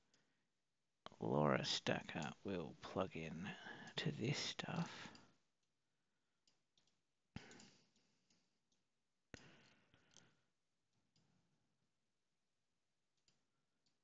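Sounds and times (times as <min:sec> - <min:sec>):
faint ticks: 0:03.4 - 0:05.4, 0:06.4 - 0:08.8.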